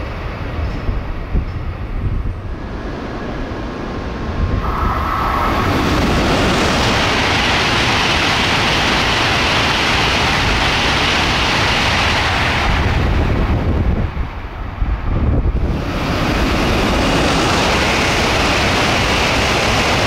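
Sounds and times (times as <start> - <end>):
high-speed train passing: 0.0 - 20.0
brief steady high tone: 4.6 - 6.5.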